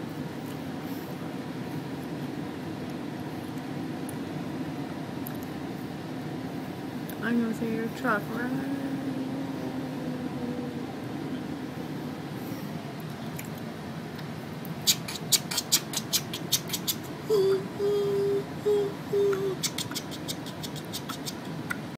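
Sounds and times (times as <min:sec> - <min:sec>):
rail car interior hum: 0:06.1 - 0:13.0.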